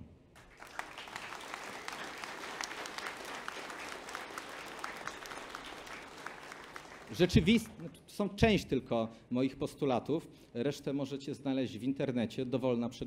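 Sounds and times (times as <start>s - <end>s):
audience applauding: 0.4s - 8.0s.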